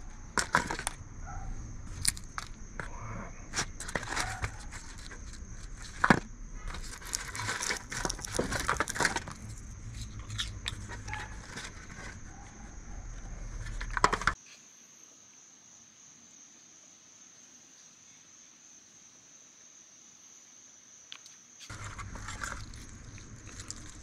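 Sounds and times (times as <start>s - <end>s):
foil pan crinkling and clicking: 5.9s - 9.4s
faint steady hiss: 14.3s - 24.0s.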